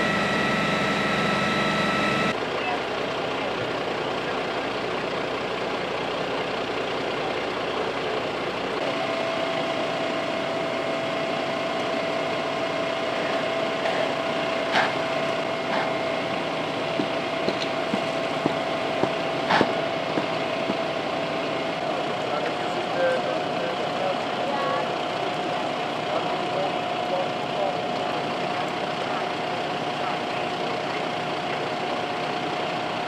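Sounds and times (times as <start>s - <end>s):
steady whine: 0.0s - 32.2s
fire engine idling: 0.0s - 33.0s
sharp knocks: 17.0s - 20.8s.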